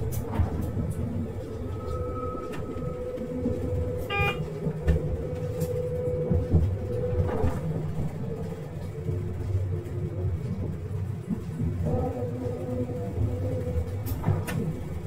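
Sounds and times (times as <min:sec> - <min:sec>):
train rumbling: 0:00.0 - 0:15.0
short electronic beep: 0:04.1 - 0:04.4.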